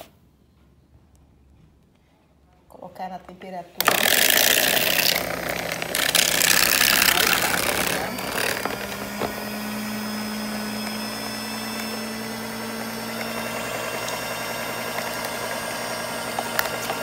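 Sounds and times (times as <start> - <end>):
stand mixer whipping cream: 3.8 - 17.0.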